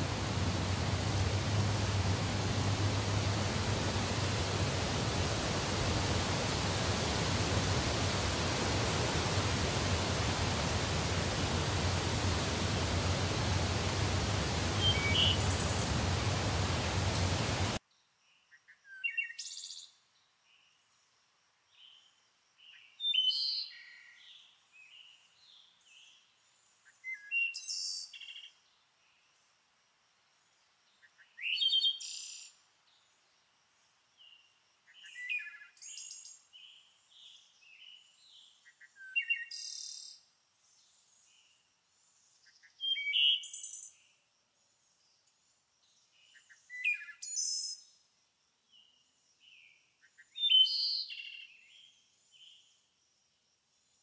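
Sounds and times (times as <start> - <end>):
songbirds chirping: 0.0 - 17.8
stream rushing over rocks: 0.0 - 17.8.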